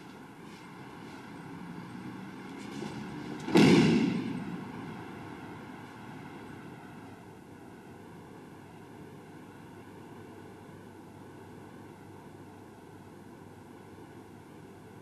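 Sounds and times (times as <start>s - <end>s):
body thudding on mat: 3.4s - 4.4s.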